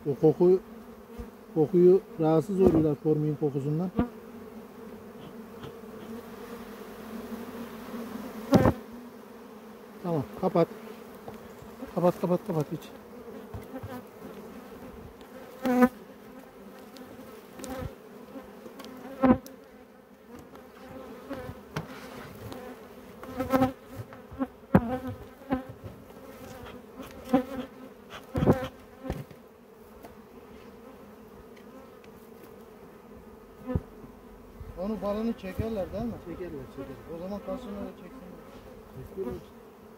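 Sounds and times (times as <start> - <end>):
honeybee colony buzzing: 0.0 - 39.9
wooden hive parts knocking: 2.6 - 3.0, 28.3 - 29.4.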